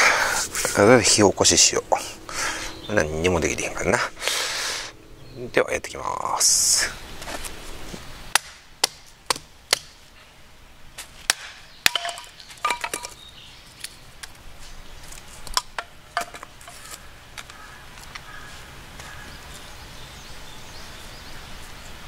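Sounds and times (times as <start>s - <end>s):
firewood splitting on block: 8.3s - 10.0s, 11.2s - 13.2s, 15.1s - 17.0s.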